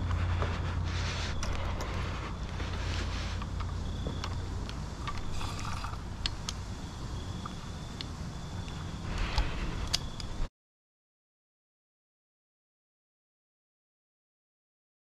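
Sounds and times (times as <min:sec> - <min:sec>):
low wind rumble on microphone: 0:00.0 - 0:10.5
faint thin high whine: 0:01.0 - 0:10.5
small clicks and ticks: 0:07.4 - 0:10.4.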